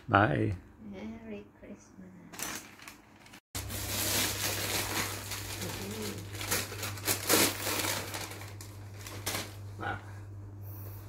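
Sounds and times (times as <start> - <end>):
wrapping paper crinkling and tearing: 2.3 - 9.7
steady low hum: 3.6 - 11.0.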